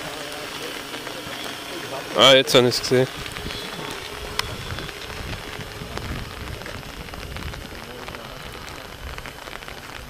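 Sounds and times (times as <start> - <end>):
crackling hiss: 0.0 - 10.0
drone rotors humming: 0.0 - 10.0.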